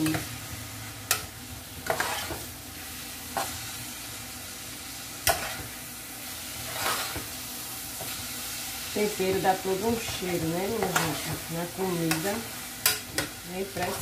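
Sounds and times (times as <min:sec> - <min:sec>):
meat sizzling in a saucepan: 0:00.0 - 0:14.0
metal spoon scraping a pan: 0:01.1 - 0:02.5, 0:05.2 - 0:05.8, 0:06.5 - 0:07.3, 0:09.1 - 0:14.0.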